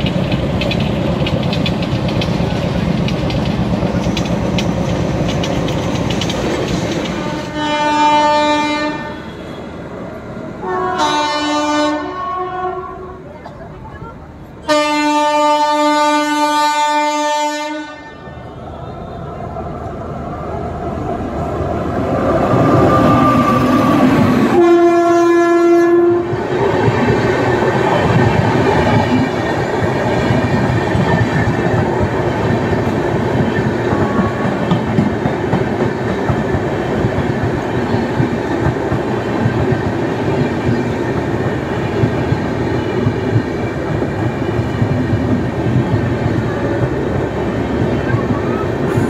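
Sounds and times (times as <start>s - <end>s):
clicking over rail joints: 0.0s - 7.5s
train wheels on rails: 0.0s - 12.2s, 12.9s - 49.0s
locomotive horn: 7.1s - 9.8s, 10.6s - 13.2s, 14.6s - 19.2s, 24.4s - 26.4s.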